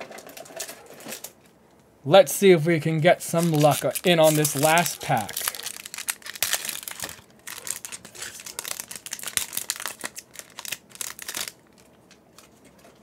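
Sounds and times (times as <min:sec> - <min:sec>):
foil wrapper crinkling: 0:03.2 - 0:13.0.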